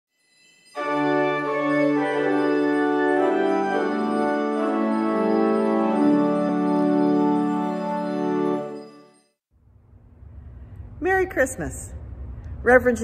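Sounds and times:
organ chords: 0:00.8 - 0:09.1.

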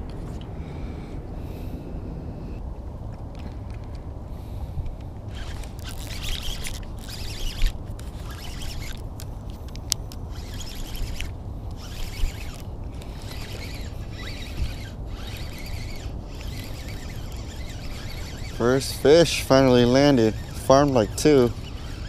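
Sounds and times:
low steady rumble: 0:00.0 - 0:22.0
rustling and scraping of gear: 0:04.8 - 0:22.0.

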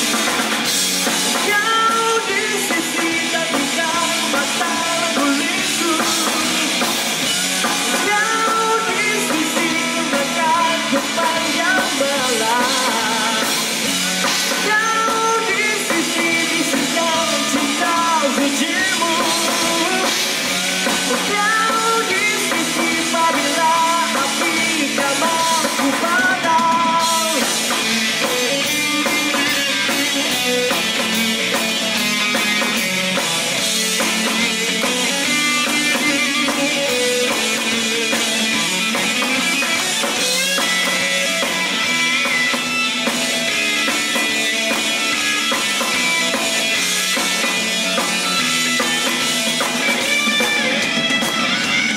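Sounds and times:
live rock band playing: 0:00.0 - 0:51.9
man singing: 0:01.3 - 0:31.3, 0:33.9 - 0:41.5.

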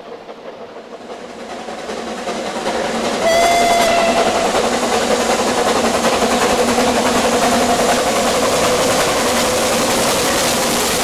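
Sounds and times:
steam locomotive exhaust: 0:00.0 - 0:07.7
steam whistle blast: 0:03.2 - 0:04.6.

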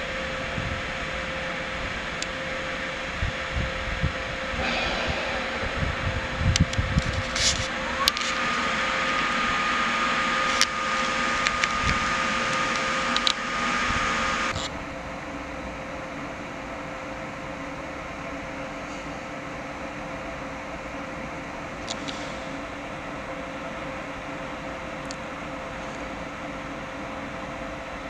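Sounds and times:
electric trains humming: 0:00.0 - 0:15.4
fan whir: 0:00.0 - 0:16.8
rising whine: 0:04.5 - 0:14.6.

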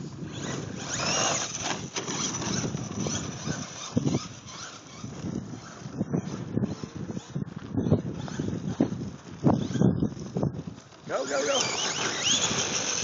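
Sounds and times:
toy car motor whine: 0:00.0 - 0:13.0
tyres crunching gravel: 0:00.7 - 0:06.0, 0:08.3 - 0:13.0.

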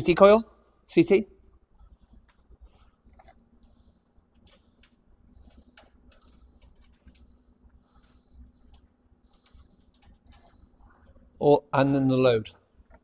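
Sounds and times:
cables and plastic connectors clicking: 0:04.4 - 0:10.7.

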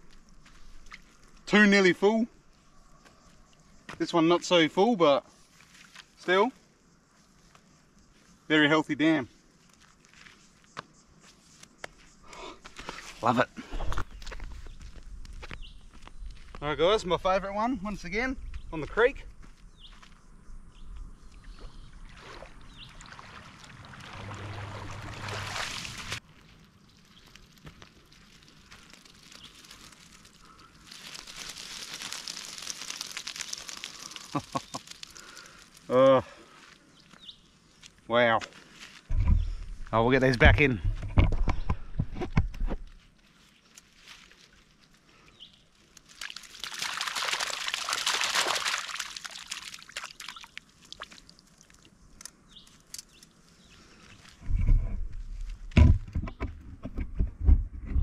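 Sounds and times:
water dripping from net: 0:22.1 - 0:26.2, 0:28.1 - 0:35.9, 0:45.8 - 0:51.9
yabbies clicking and crackling: 0:27.0 - 0:35.9
small clicks: 0:51.6 - 0:53.3.

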